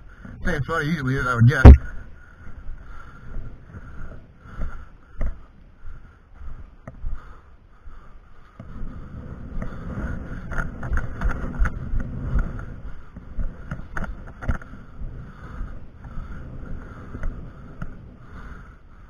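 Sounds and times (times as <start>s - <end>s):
wind buffeting microphone: 8.6s - 18.7s.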